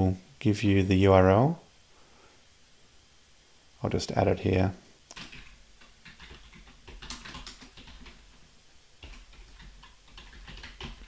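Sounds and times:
typing on computer keyboard: 5.1s - 8.4s, 9.0s - 11.0s.

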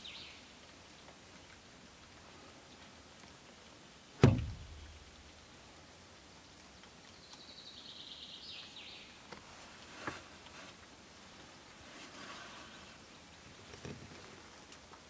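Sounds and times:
sharp loud thump with ring: 4.2s - 4.8s.

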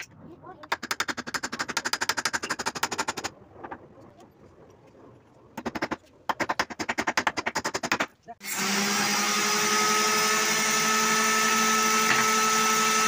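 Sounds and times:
rapid clicking of hand tool: 0.6s - 3.3s, 5.6s - 8.1s.

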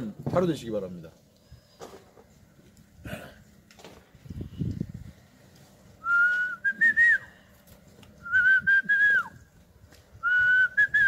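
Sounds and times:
man whistling: 6.0s - 7.3s, 8.2s - 9.4s, 10.2s - 11.0s.

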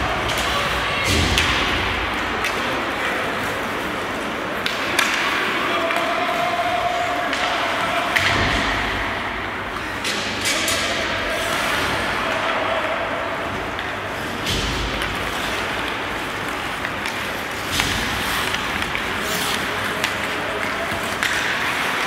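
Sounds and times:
skates and rink ambience: 0.0s - 22.0s
sticks and puck knocking boards: 13.7s - 22.0s.

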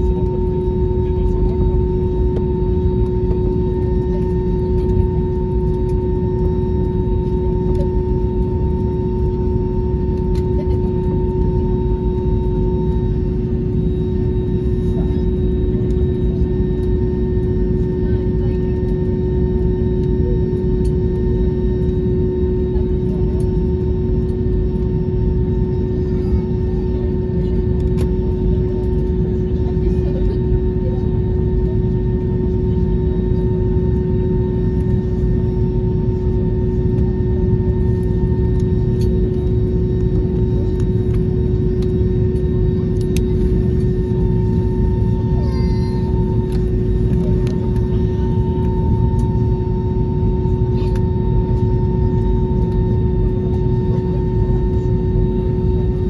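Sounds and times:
jet engines idling low rumble: 0.0s - 56.0s
steady hum tone: 0.0s - 56.0s.

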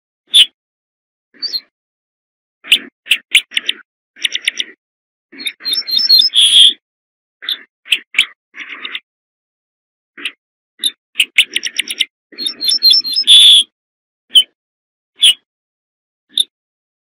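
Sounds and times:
bird calling: 1.4s - 1.7s, 2.6s - 6.8s, 7.4s - 9.1s, 10.2s - 13.7s, 15.2s - 15.5s.

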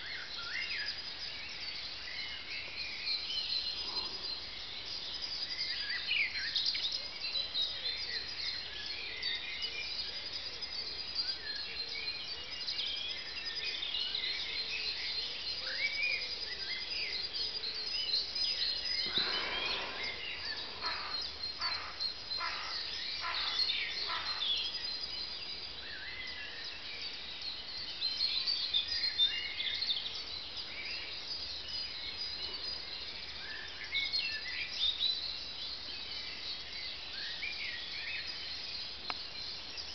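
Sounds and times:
songbirds singing and chirping: 0.0s - 39.9s
bird short loud calls: 19.0s - 24.4s.

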